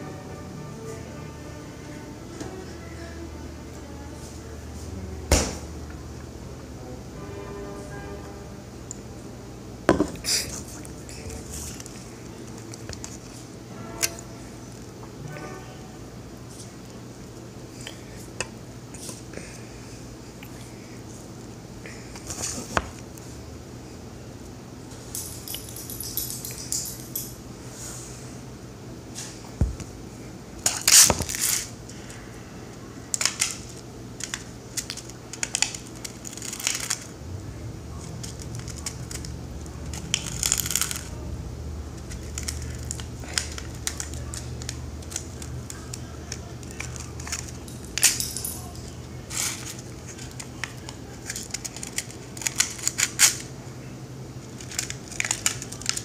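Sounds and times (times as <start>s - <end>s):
low steady hum: 0.0s - 56.0s
metal utensils clinking on tin: 25.1s - 27.4s.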